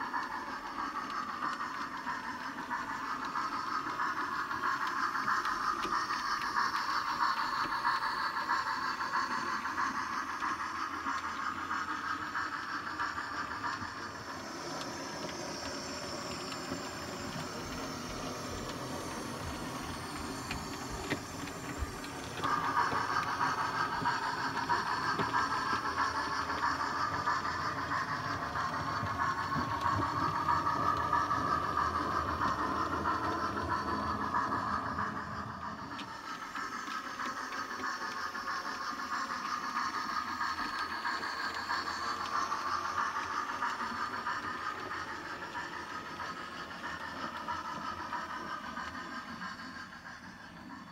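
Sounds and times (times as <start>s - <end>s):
model train wheels rumbling on track: 0.0s - 50.9s
steady hiss: 0.0s - 50.9s.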